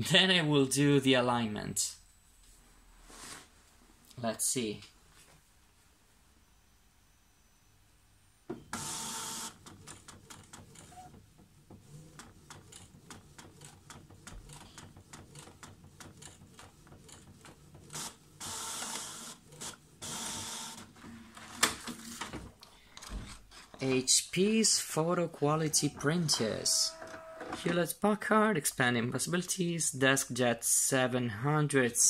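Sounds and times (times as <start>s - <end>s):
printer paper feed whirr: 8.8s - 21.6s, 25.6s - 27.8s
print carriage clicking: 25.7s - 27.8s.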